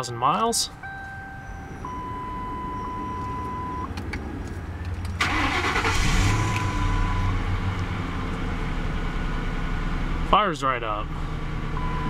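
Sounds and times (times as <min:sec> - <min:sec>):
high chime tone: 0:00.6 - 0:03.9
car engine starting and idling: 0:00.6 - 0:12.0.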